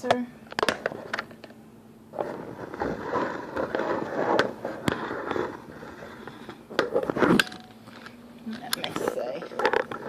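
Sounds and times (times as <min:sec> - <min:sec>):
camera scraping on counter: 0:02.2 - 0:07.4.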